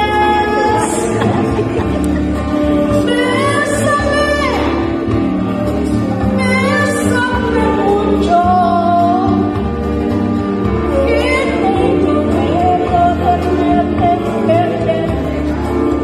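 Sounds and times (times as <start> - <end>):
woman singing into microphone: 0.0 - 1.7, 2.6 - 5.0, 6.1 - 9.6, 10.8 - 15.4
music with steady bass line: 0.0 - 16.0.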